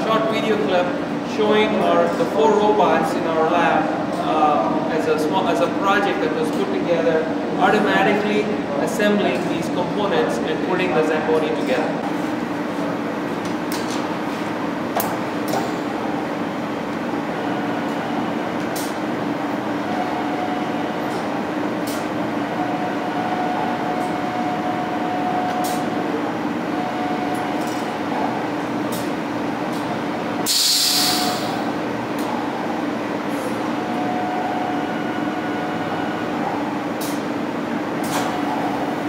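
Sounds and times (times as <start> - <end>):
steady machine hum: 0.0 - 39.0
short loud hiss: 30.5 - 31.6.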